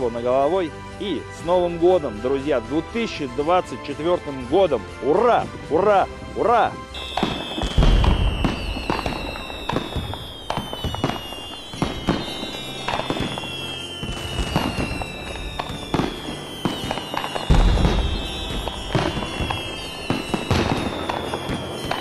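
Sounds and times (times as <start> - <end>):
fireworks bangs and crackles: 2.2 - 22.0
heavy firework boom: 7.0 - 22.0.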